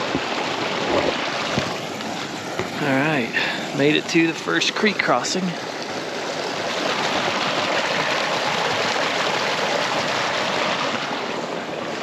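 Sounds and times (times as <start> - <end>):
creek water rushing: 0.0 - 12.0.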